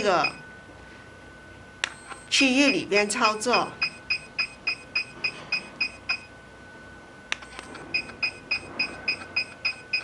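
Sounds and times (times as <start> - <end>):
machine short beeps: 0.0 - 0.4, 1.9 - 2.9, 3.5 - 6.3, 7.4 - 10.0.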